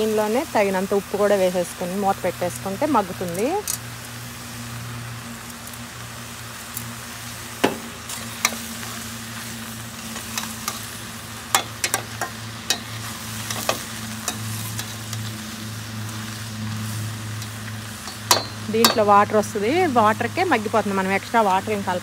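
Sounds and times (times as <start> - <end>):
vegetables sizzling: 0.0 - 22.0
metal spatula clinking pan: 18.1 - 19.1.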